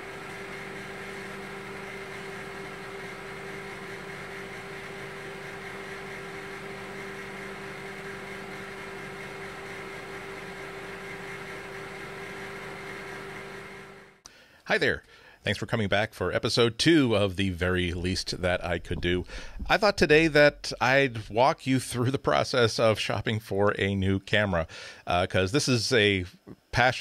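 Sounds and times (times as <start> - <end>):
microwave oven humming: 0.0 - 15.3, 17.6 - 21.4.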